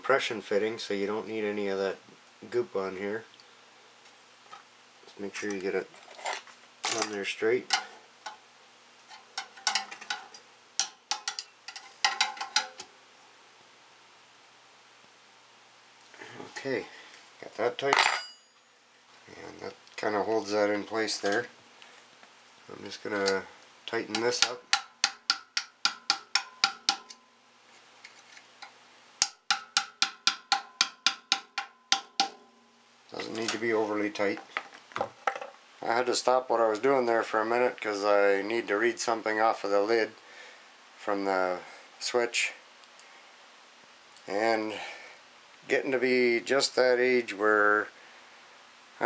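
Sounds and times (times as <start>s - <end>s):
light metallic clicks and taps: 9.1s - 12.9s.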